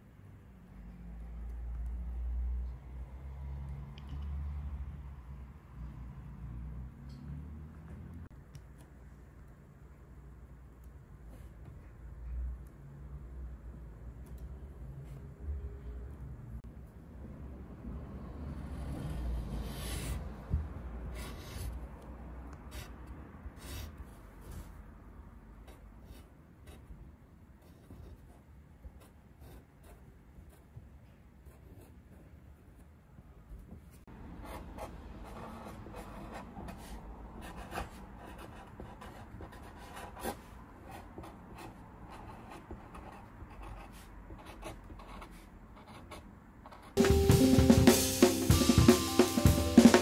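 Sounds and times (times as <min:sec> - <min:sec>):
marker pen scratching on wood: 0:34.4 - 0:47.0
pencil scratching on painted surface: 0:34.4 - 0:47.0
drum-kit music: 0:47.0 - 0:50.0.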